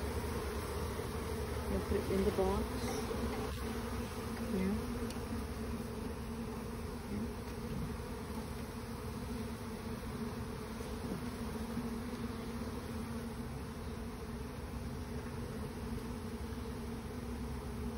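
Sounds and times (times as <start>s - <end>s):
bees buzzing: 0.0s - 17.9s
single bee flying past: 0.0s - 17.9s.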